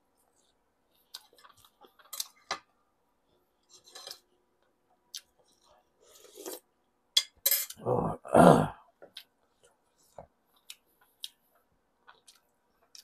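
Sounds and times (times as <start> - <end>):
man chewing: 0.2 - 2.4, 5.0 - 6.0, 9.1 - 13.0.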